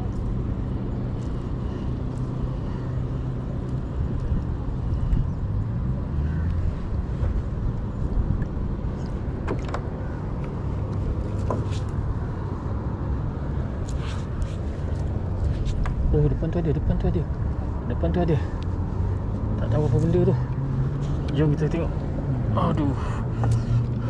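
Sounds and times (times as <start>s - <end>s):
wind buffeting microphone: 1.9s - 18.0s.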